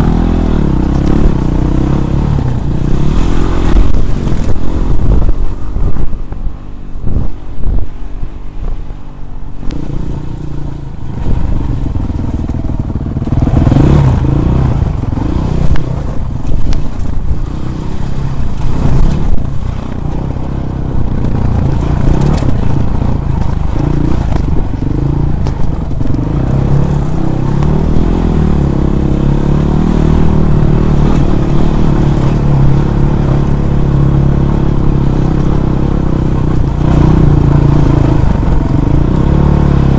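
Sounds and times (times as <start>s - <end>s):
dirt bike engine revving: 0.0s - 6.1s, 9.7s - 39.9s
bike rattling over rocks: 15.2s - 28.1s.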